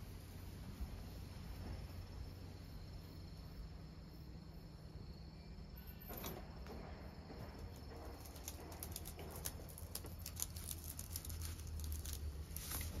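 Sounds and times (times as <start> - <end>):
cat claws scratching blind slats: 7.6 - 13.0.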